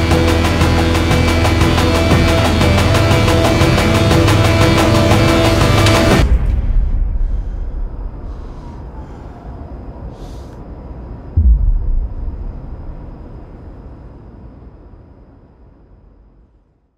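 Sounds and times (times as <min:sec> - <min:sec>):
low cinematic rumble: 0:11.3 - 0:14.4
deep boom dropping in pitch: 0:11.4 - 0:13.8.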